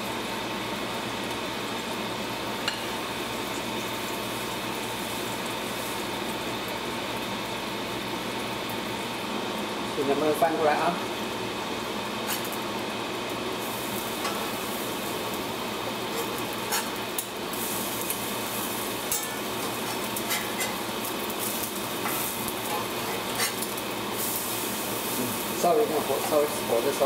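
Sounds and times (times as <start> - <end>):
pancakes sizzling in oil: 0.0 - 27.0
metal spatula scraping a pan: 16.1 - 17.0, 19.1 - 20.8, 22.0 - 23.7.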